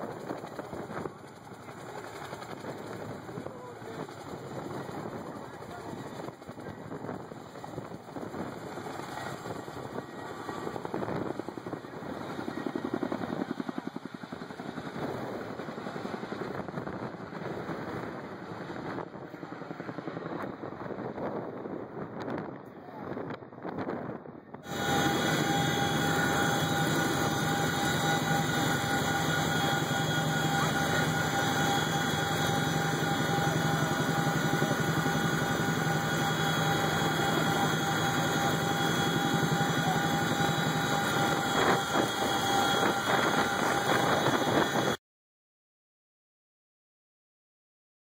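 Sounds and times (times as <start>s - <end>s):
helicopter cabin noise: 0.0s - 45.0s
whining tones: 24.6s - 45.0s.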